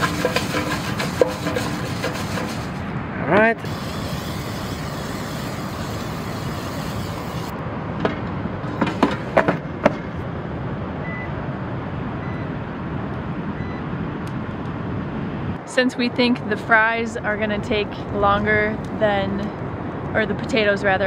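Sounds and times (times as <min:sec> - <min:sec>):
steady background rush: 0:01.5 - 0:21.0
short beeps: 0:12.2 - 0:12.5, 0:13.5 - 0:13.8.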